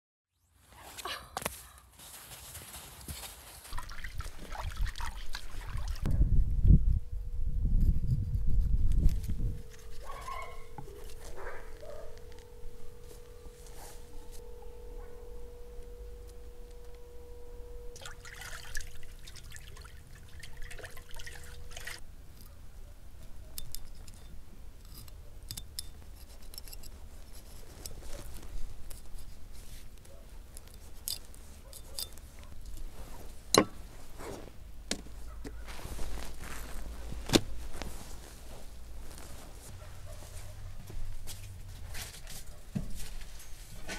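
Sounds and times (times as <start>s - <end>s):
steady tone: 6.1s - 22.0s.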